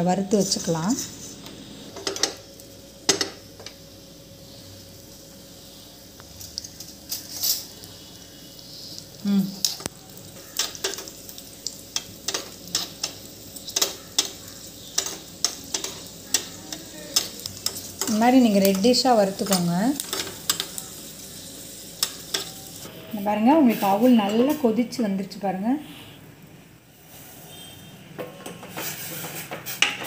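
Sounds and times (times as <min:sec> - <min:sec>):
nuts sizzling in oil: 0:00.0 - 0:28.0
steel spoon clinking and scraping pan: 0:11.9 - 0:20.8.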